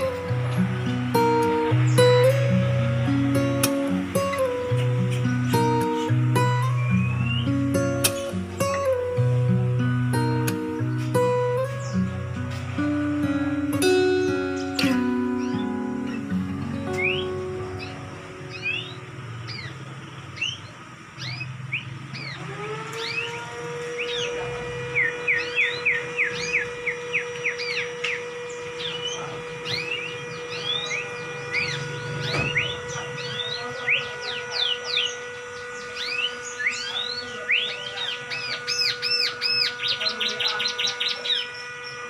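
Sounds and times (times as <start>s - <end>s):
steady low tone: 0.0s - 22.3s
songbird chirping and whistling: 0.0s - 42.0s.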